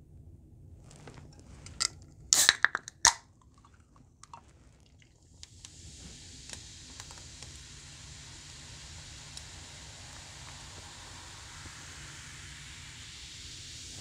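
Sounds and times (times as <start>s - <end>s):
can and glass clicks: 1.6s - 4.4s
soda can opening: 1.6s - 5.0s
soda fizzing over ice: 1.6s - 14.0s.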